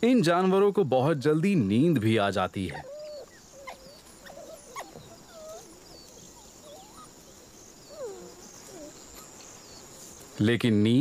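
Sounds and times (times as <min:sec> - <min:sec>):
puppies squeaking: 0:02.7 - 0:09.4.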